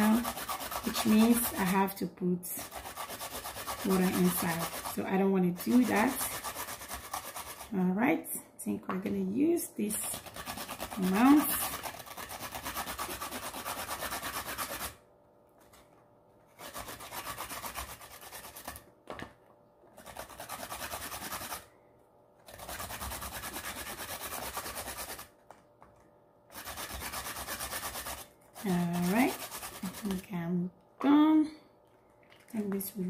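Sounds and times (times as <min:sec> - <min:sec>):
carrots scraping on a grater: 0:00.0 - 0:02.0, 0:02.6 - 0:07.7, 0:09.9 - 0:15.0, 0:22.5 - 0:25.3, 0:26.5 - 0:30.3.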